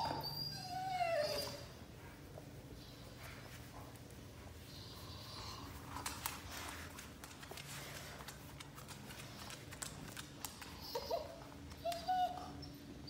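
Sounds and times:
dog whimpering: 0.0 - 1.8, 10.6 - 13.0
dog claws clicking on floor: 5.6 - 12.2.

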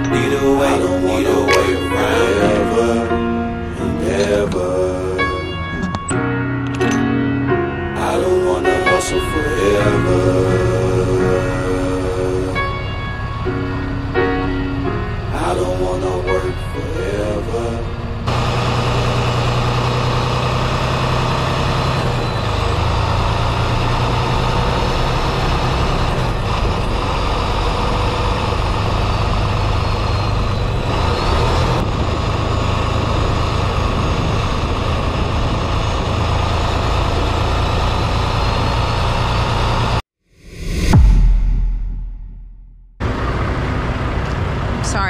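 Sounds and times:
diesel truck engine running: 0.0 - 40.0, 43.0 - 45.0
road noise: 0.0 - 41.1, 43.0 - 45.0.

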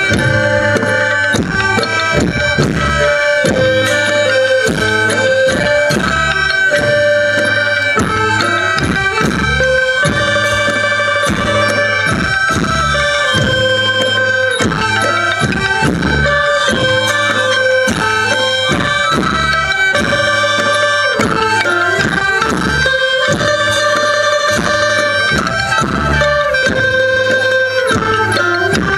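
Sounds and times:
drum beat: 0.0 - 28.9
held drone tones: 0.0 - 28.9
reedy wind instrument melody: 0.0 - 28.9.

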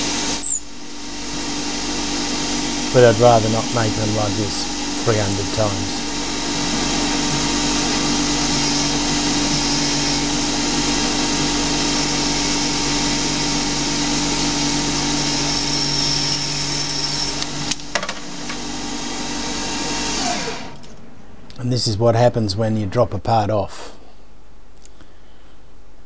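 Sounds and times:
high whine: 0.0 - 11.4
lathe running: 0.0 - 17.7.

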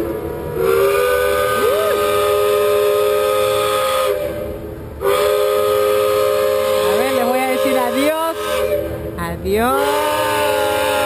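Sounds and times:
steam chime whistle blasts: 0.6 - 4.2, 9.7 - 11.0.

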